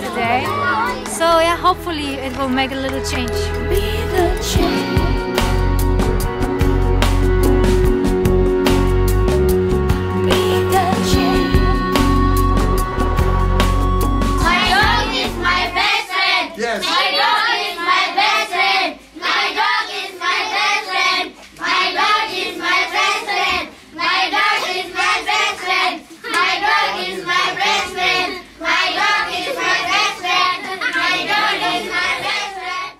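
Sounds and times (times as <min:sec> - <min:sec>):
children singing together: 0:03.6 - 0:05.2, 0:10.2 - 0:32.9.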